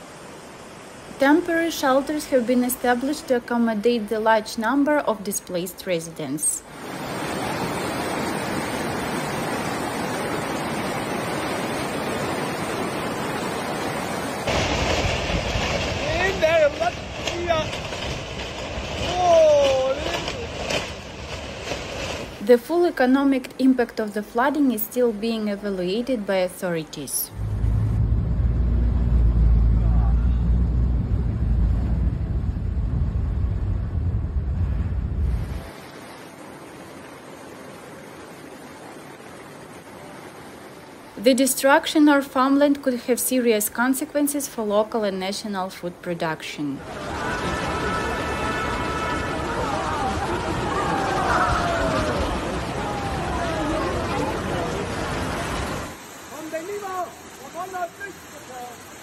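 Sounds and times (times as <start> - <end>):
floodwater rushing: 0.0 - 45.4, 46.4 - 59.0
water washing against car: 10.2 - 22.5
car driving through floodwater: 46.9 - 58.8
steady hiss: 53.4 - 59.0.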